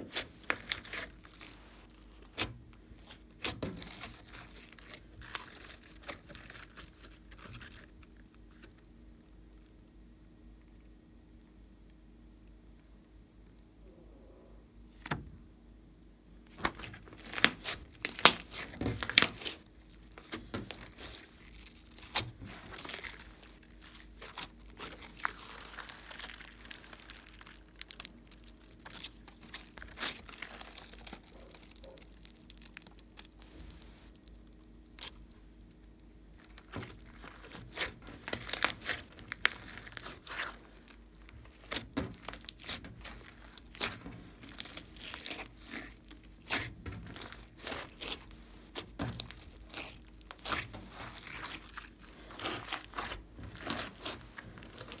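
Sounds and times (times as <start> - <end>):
slime crackling and clicking: 16.5 - 55.0.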